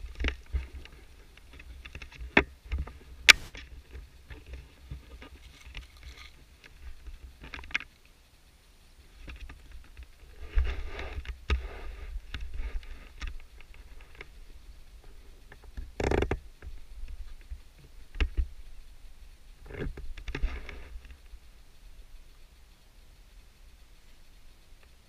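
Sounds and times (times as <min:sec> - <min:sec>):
wind rumble on microphone: 0:09.0 - 0:25.0.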